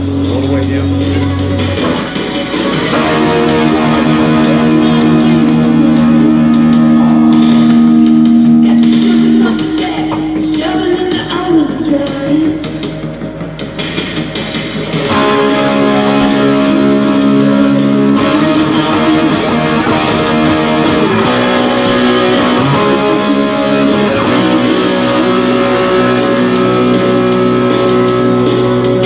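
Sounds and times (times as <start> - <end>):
guitar background music: 0.0 - 29.0.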